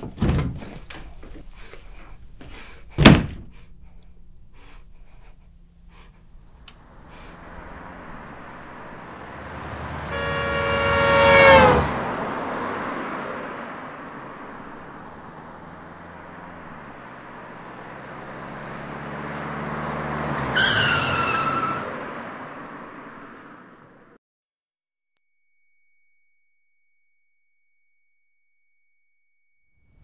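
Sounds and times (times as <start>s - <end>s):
cars driving past: 6.3s - 24.2s
car horn: 9.0s - 12.6s
vehicle horn higher tone: 9.6s - 12.0s.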